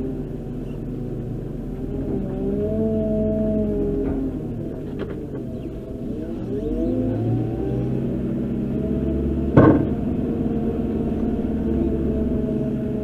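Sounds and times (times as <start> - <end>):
diesel engine revving: 0.0 - 13.0
loud knock: 9.6 - 10.0.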